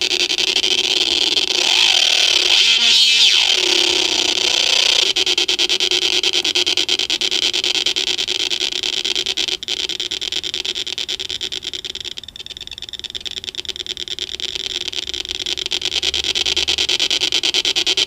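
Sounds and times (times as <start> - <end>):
buzzy pulsing electronic drone: 0.0 - 11.0.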